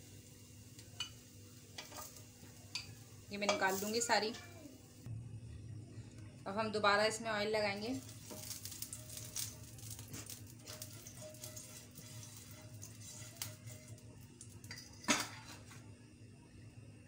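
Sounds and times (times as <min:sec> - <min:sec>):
basting brush scraping grill pan: 0:08.0 - 0:15.7.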